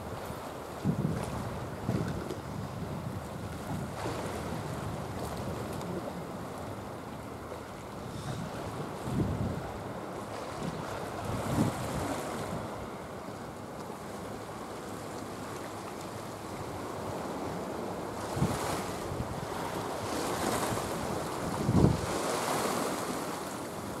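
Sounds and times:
wind rumbling on microphone: 0.0 - 6.6, 8.0 - 12.8, 18.2 - 23.2
water lapping against concrete wall: 0.2 - 6.3, 7.4 - 12.8.

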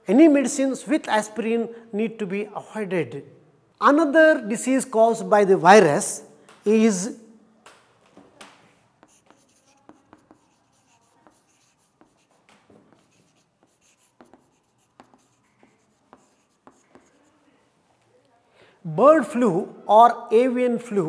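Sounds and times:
chalk tapping and scratching: 8.4 - 17.5.

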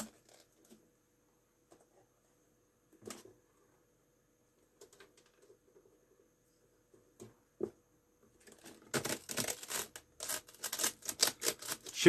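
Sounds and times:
screwdriver crunching glass tube: 8.4 - 12.0.

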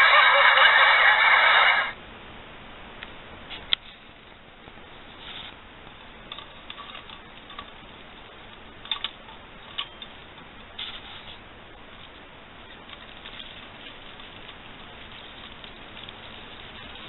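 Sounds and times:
branches rustling: 4.8 - 17.0
ornaments clicking: 6.2 - 10.8.

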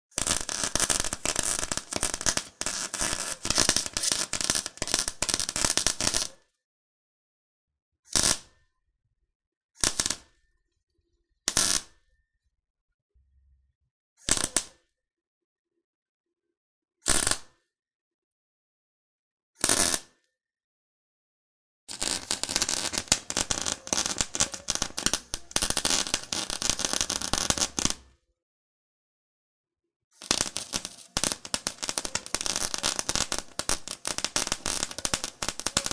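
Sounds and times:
welding arc crackling and sizzling: 0.1 - 6.4, 21.9 - 28.0, 30.2 - 35.9.

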